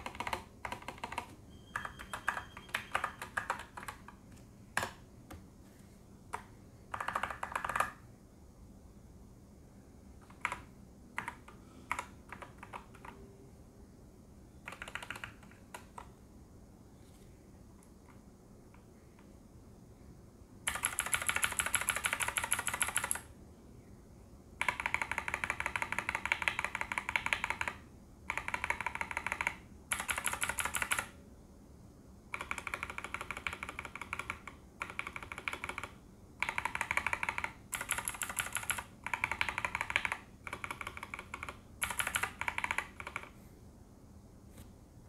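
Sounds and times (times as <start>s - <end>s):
fast mechanical keyboard typing: 0.0s - 4.2s, 6.9s - 8.0s, 10.2s - 13.2s, 14.6s - 16.1s, 20.7s - 23.3s, 24.6s - 31.2s, 32.3s - 43.4s.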